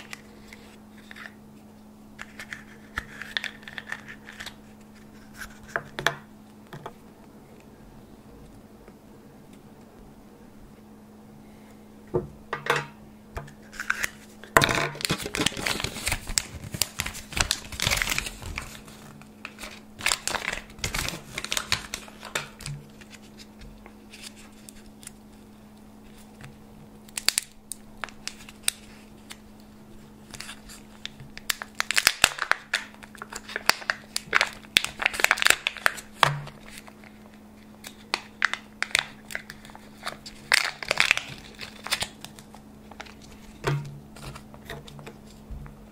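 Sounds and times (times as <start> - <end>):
faint steady hum: 0.0 - 45.9
wrapper crinkling and tearing: 2.2 - 5.8, 13.6 - 25.4, 27.1 - 29.6, 30.2 - 45.4.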